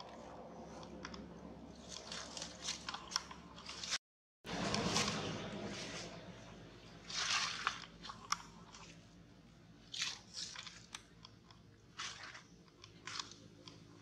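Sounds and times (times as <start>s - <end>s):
footsteps crunching on dry leaves: 1.9s - 6.3s, 7.0s - 8.2s.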